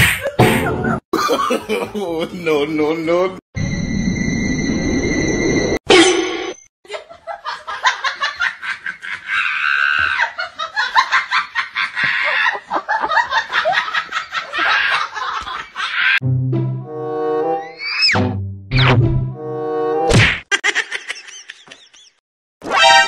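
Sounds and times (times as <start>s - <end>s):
person laughing hard: 0.2s - 2.4s, 6.9s - 16.2s, 20.5s - 22.2s.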